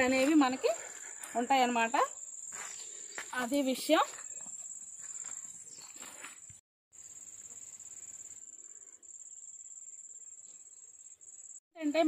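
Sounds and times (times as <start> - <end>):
footsteps on dirt path: 0.0 - 1.6, 2.4 - 6.6.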